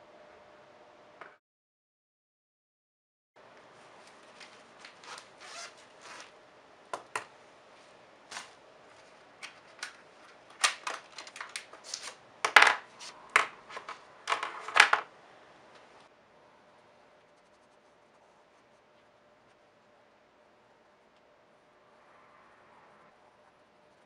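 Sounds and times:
paper and plastic rustling: 0:03.8 - 0:06.3, 0:08.3 - 0:12.2.

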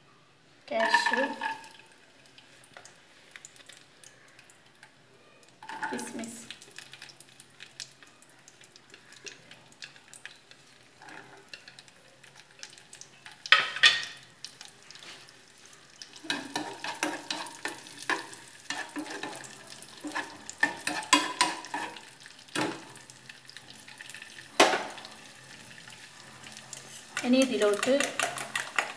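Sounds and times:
spoon scraping and clinking pan: 0:00.7 - 0:01.8, 0:16.2 - 0:22.1, 0:26.8 - 0:28.9
nuts sizzling in fat: 0:00.7 - 0:28.9.

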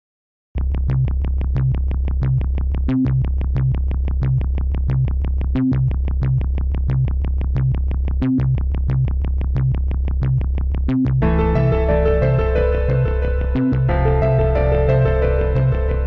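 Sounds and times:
repeating bass line: 0:00.6 - 0:16.0
short synth notes: 0:11.2 - 0:16.0.

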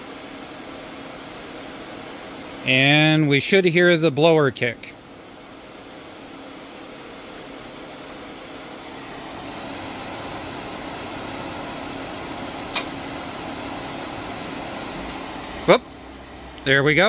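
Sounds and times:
furnace blower humming: 0:00.0 - 0:17.0
burner ignition click: 0:12.6 - 0:15.2.

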